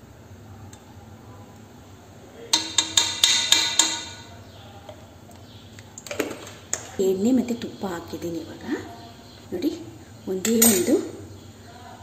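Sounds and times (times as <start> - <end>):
spatula tapping metal pot rim: 2.5 - 4.3.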